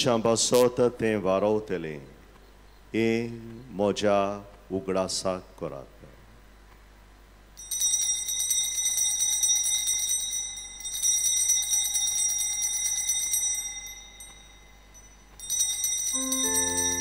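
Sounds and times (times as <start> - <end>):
small hand bells ringing: 7.6 - 17.0.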